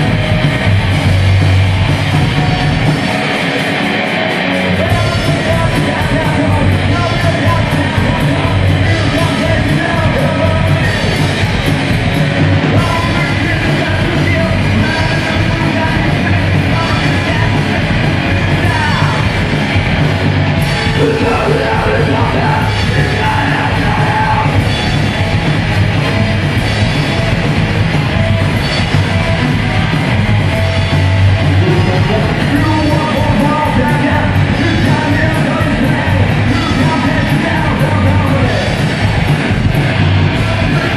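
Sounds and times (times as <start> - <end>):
live rock band: 0.0 - 40.9
singer yelling into microphone: 4.7 - 11.3, 12.7 - 19.4, 20.7 - 24.7, 31.6 - 38.9.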